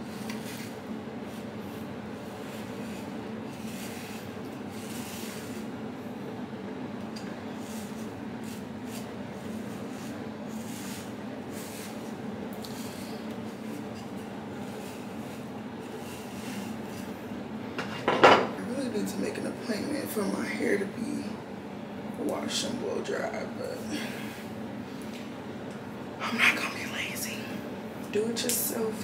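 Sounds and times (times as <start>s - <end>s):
steady low hum: 0.0s - 29.0s
hair brush swishing: 7.6s - 17.1s.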